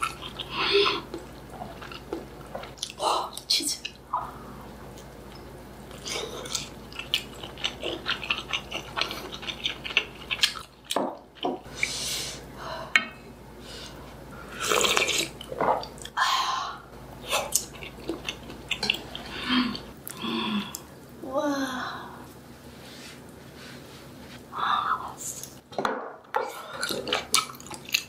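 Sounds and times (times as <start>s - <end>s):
person chewing with smacking: 0.0s - 3.0s, 3.8s - 11.7s, 17.3s - 20.9s, 26.4s - 28.0s.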